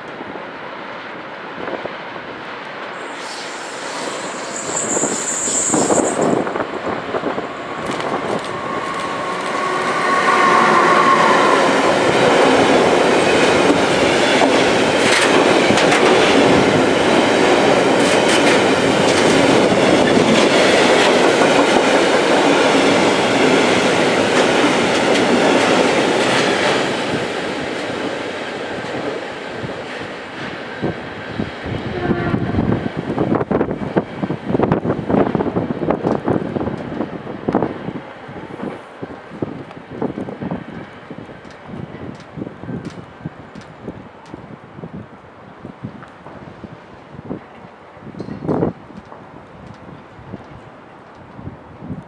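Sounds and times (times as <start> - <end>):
freight train passing: 0.0 - 52.0.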